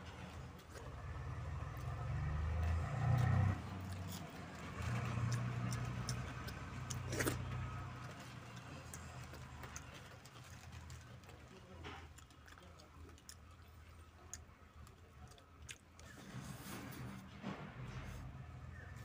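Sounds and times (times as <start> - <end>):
vehicle engine hum: 0.0 - 11.6, 16.0 - 19.0
clicks from eating by hand: 2.5 - 16.2.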